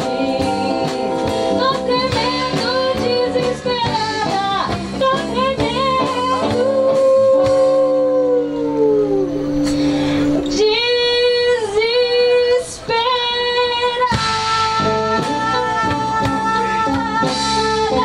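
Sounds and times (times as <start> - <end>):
electric bass: 0.0 - 12.0, 13.7 - 18.0
drums: 0.0 - 18.0
woman singing with vibrato: 0.0 - 18.0
saxophone: 5.4 - 11.9.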